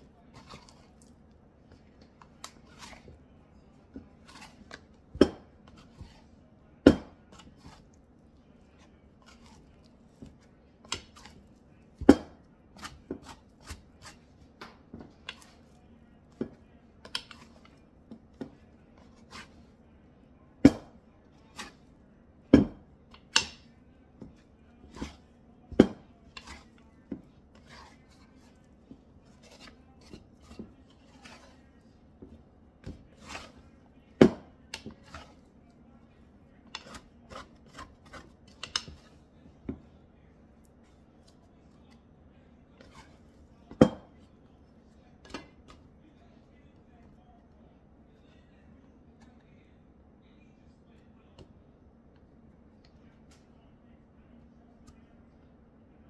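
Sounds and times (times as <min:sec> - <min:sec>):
plastic scraper knocking ceramic bowl: 0:24.9 - 0:27.9, 0:34.2 - 0:35.3.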